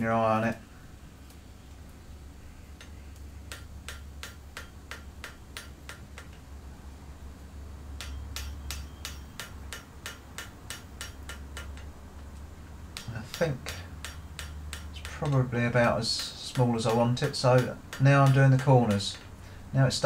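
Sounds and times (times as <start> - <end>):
hammer striking hot metal on anvil: 2.8 - 6.4, 8.0 - 11.9, 12.9 - 19.2.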